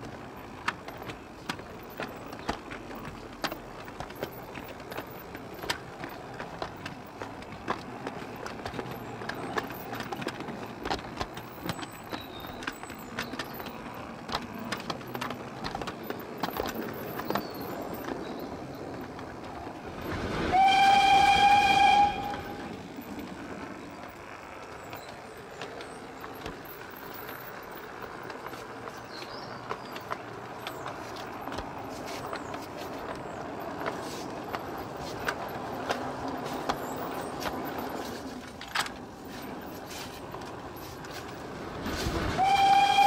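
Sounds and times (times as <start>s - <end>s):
steam train rolling: 0.0s - 43.0s
wheels clicking over rail joints: 0.0s - 43.0s
steam whistle blast: 20.4s - 22.6s, 42.3s - 43.0s.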